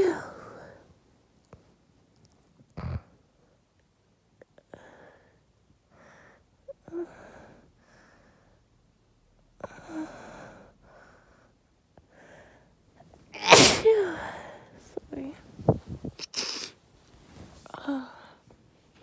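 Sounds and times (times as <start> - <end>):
woman sneezing: 13.4 - 14.3.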